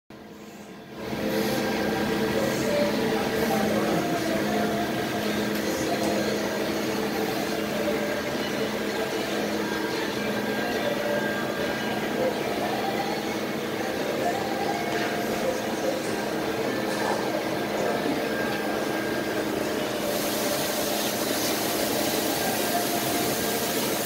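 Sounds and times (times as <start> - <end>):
lathe humming: 1.0 - 24.0.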